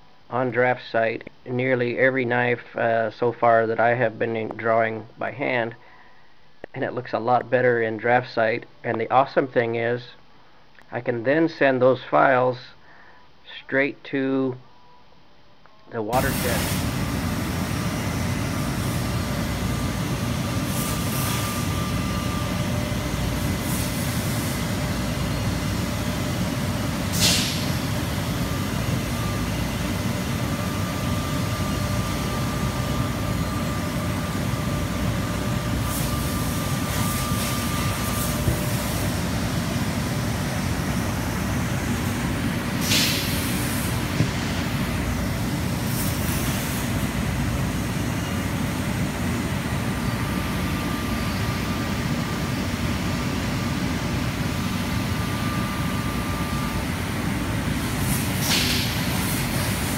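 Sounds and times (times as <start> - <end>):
faint steady whine: 0.0 - 59.9
laser cutting machine drone: 16.1 - 59.9
short sharp hisses: 16.2 - 17.0, 27.1 - 27.9, 42.8 - 44.0, 58.0 - 59.9.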